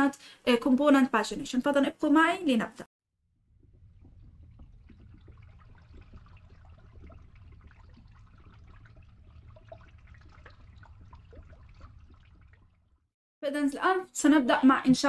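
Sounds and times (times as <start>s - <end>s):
low underwater rumble: 3.2s - 13.1s
bubbling pops and crackles: 3.3s - 13.1s.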